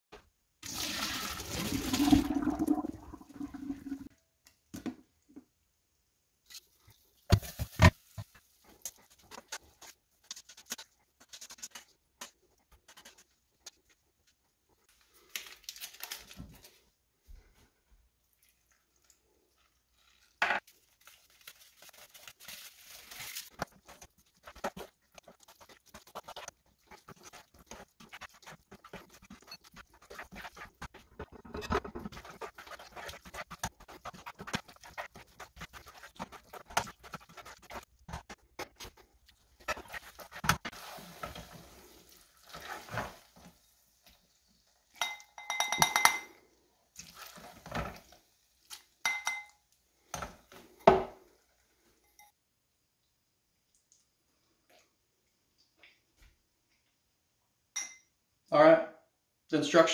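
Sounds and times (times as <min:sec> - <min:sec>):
spoon scraping in saucepan: 0:21.8 - 0:41.9
spoon clinking ceramic bowl: 0:45.0 - 0:46.4, 0:49.0 - 0:49.6, 0:57.8 - 0:58.1.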